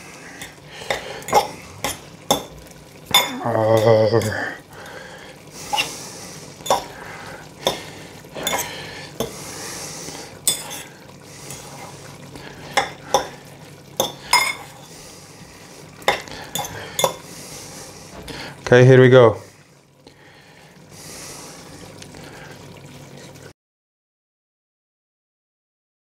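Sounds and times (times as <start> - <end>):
wet sticky noodle stirring: 0.2 - 18.8.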